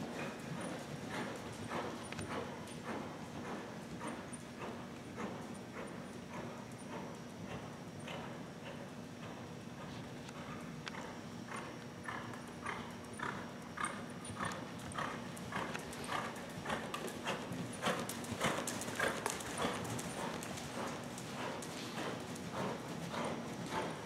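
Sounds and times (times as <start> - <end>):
horse hoofbeats on sand: 10.4 - 24.0.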